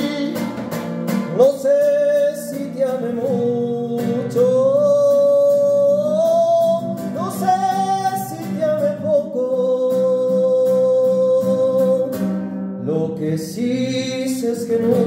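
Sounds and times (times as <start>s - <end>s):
man singing: 0.0s - 15.0s
strummed classical guitar: 0.0s - 15.0s.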